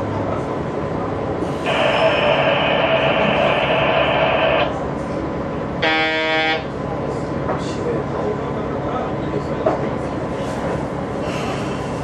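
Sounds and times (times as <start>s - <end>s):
steady station bell ringing: 1.6s - 4.8s, 5.8s - 6.9s.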